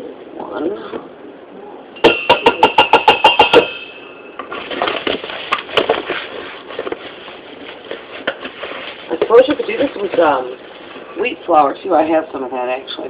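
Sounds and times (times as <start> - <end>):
utensil tapping a bowl: 2.0 - 4.0
scraping and rustling: 4.4 - 11.2.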